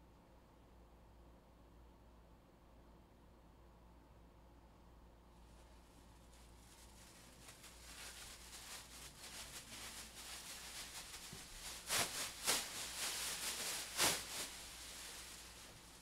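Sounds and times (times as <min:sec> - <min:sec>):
rustling noise: 0:05.4 - 0:16.0
sharp crackles: 0:06.6 - 0:16.0.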